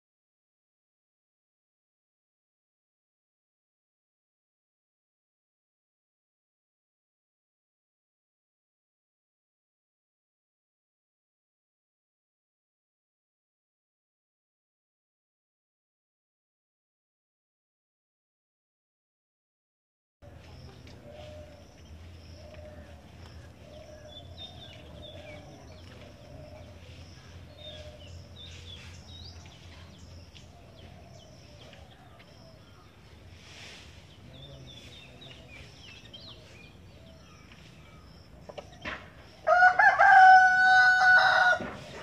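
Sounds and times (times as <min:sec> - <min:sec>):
small birds twittering: 0:20.2 - 0:42.0
rooster crowing: 0:39.4 - 0:41.9.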